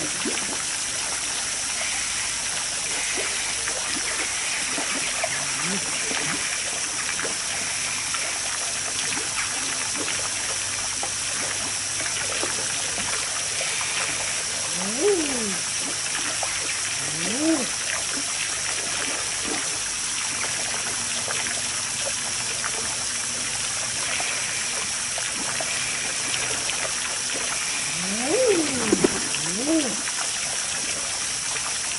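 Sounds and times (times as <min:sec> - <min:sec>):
trickling water: 0:00.0 - 0:31.9
eider crooning calls: 0:14.7 - 0:15.6, 0:17.0 - 0:17.7, 0:27.9 - 0:30.1.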